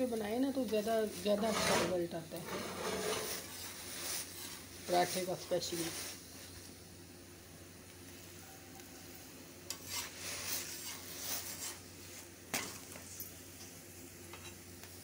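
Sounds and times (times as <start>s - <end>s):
flatbread sizzling: 0.0s - 15.0s
metal spatula scraping on a griddle: 1.2s - 5.2s, 9.7s - 12.9s, 14.3s - 14.6s.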